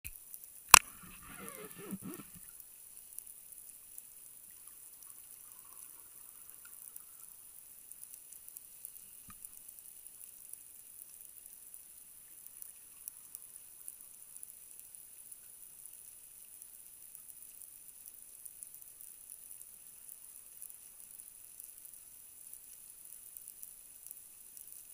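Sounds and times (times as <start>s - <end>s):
faint clicks: 0.1s - 24.9s
steady underwater hiss: 0.2s - 24.9s.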